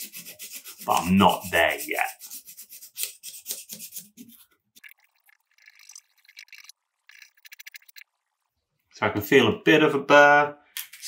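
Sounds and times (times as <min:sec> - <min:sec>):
hone rasping on steel blade: 0:00.0 - 0:04.4.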